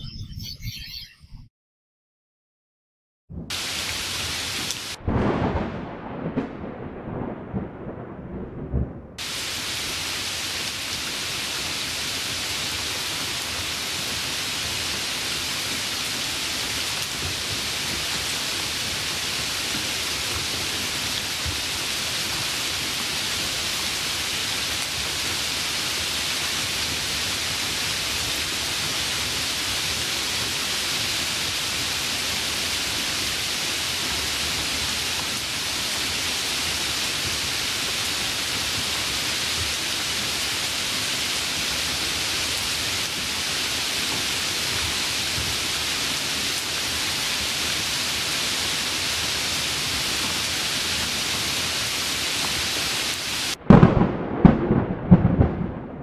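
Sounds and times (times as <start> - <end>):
hiss of falling water: 3.5 - 5.0, 9.2 - 53.6
low rumble of thunder: 4.9 - 9.4, 53.5 - 56.0.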